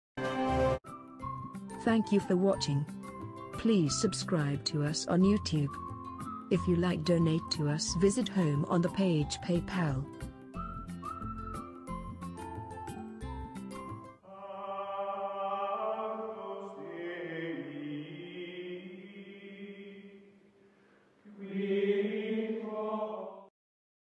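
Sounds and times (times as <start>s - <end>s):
choir-like chanting music: 14.2s - 20.4s, 21.3s - 23.5s.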